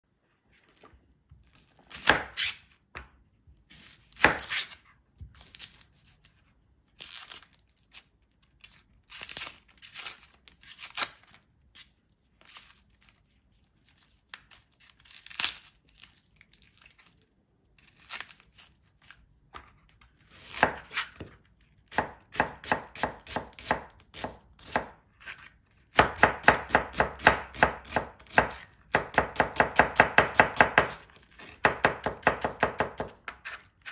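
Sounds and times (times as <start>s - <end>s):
knife cutting onion on board: 1.8s - 5.5s, 20.3s - 33.9s
knife chopping fast: 21.9s - 24.9s, 25.9s - 31.0s.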